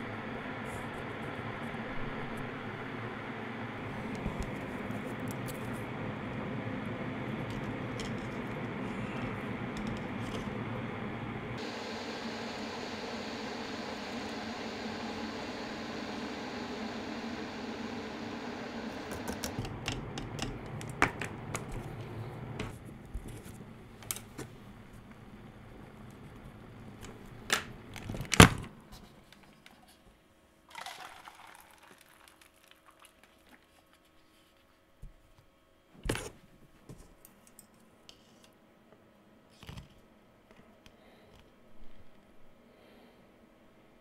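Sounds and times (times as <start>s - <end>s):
low rumbling hiss: 0.0s - 28.9s.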